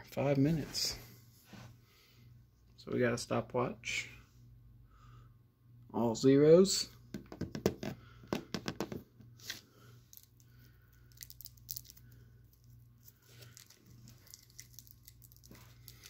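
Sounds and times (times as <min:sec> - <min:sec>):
wrapper crinkling: 0:10.1 - 0:16.0.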